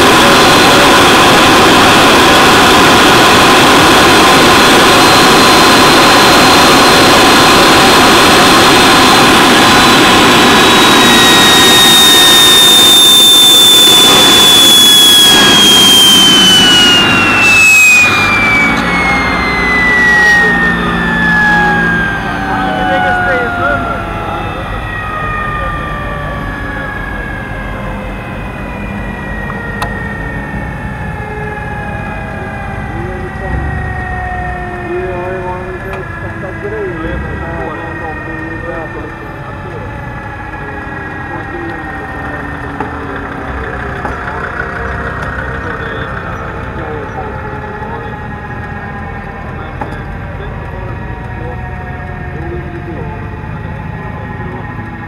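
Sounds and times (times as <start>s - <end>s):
jet turbine engine whining: 0.0s - 55.0s
motorcycle engine idling: 40.5s - 51.8s.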